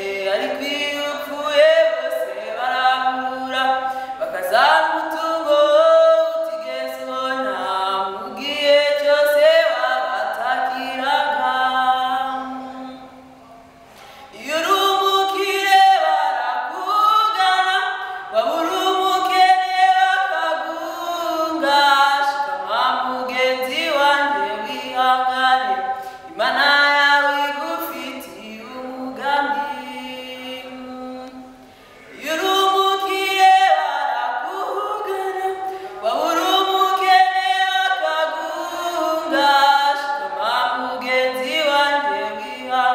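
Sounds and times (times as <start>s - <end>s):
a cappella group singing: 32.1s - 42.9s.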